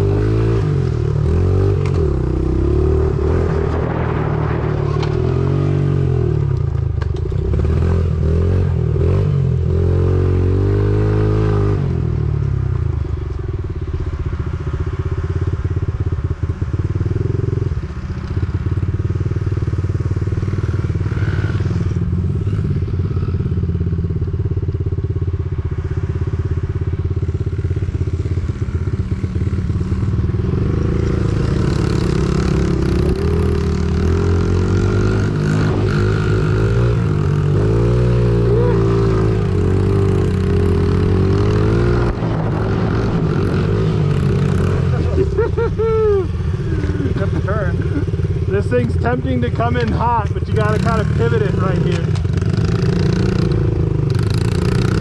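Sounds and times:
dirt bike engine revving: 28.5 - 55.0.

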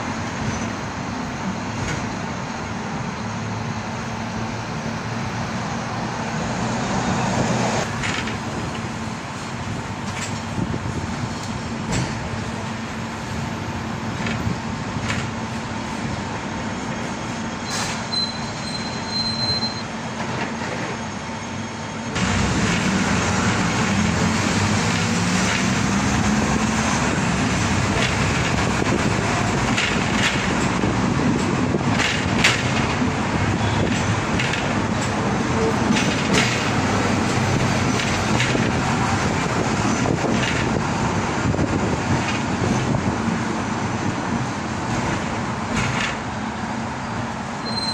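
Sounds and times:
tram wheels rumbling on rails: 0.0 - 47.9.

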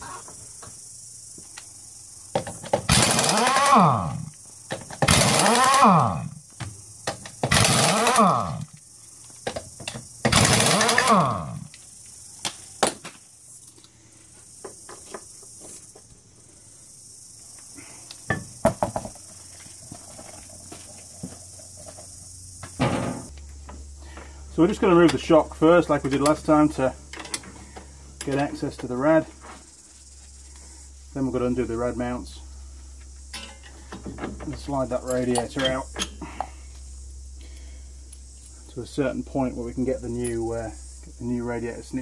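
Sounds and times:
pneumatic impact wrench bursts: 2.7 - 6.4, 7.2 - 8.8, 10.2 - 11.7.

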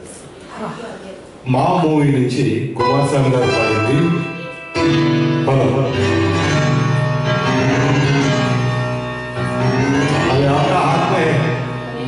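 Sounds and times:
instrumental music over sound system: 2.8 - 12.0.

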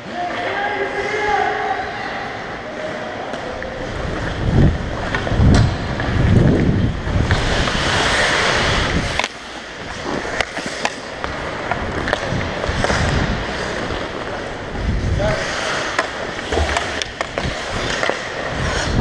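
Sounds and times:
hockey sticks and puck clacking: 2.3 - 19.0
skate blades scraping ice: 3.4 - 19.0
wind rumble on microphone: 3.9 - 9.2, 11.8 - 13.5, 14.6 - 15.4, 18.5 - 19.0.

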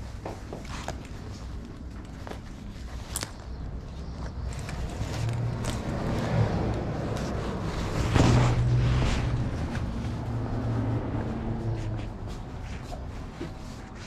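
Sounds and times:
steady low hum: 0.0 - 14.0.

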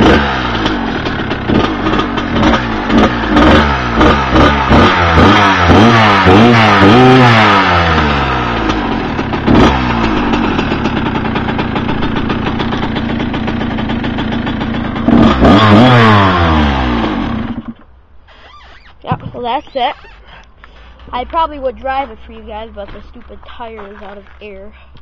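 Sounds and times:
motorcycle engine revving and idling: 0.0 - 17.9, 19.1 - 24.8.

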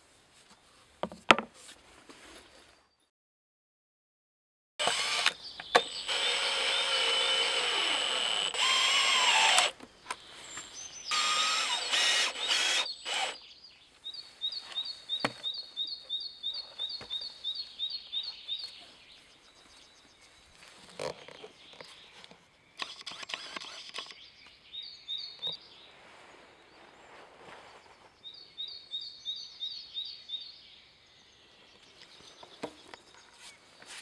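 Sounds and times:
cordless drill boring into log: 4.8 - 9.8, 11.1 - 13.4, 22.8 - 24.1
bird chirping: 4.8 - 26.0, 27.7 - 33.8.

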